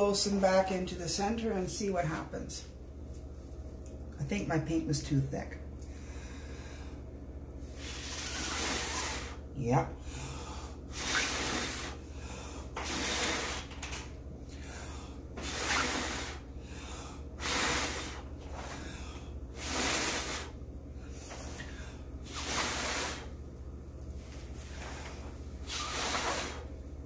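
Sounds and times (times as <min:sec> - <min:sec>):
person blowing through pursed lips: 0:07.6 - 0:09.4, 0:10.1 - 0:13.7, 0:15.4 - 0:23.4, 0:24.7 - 0:26.8.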